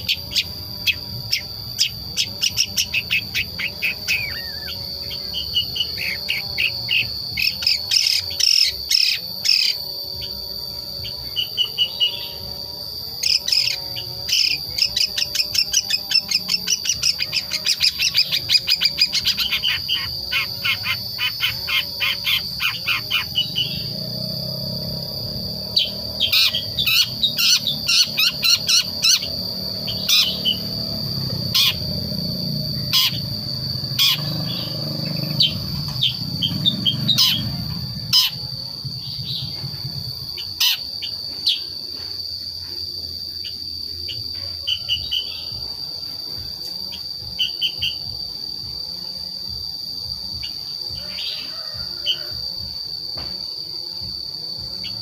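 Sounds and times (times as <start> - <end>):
young bird twittering chirps: 0.0 - 10.4, 13.2 - 24.0, 31.5 - 32.0, 32.8 - 38.4
high insect trill: 0.0 - 55.0.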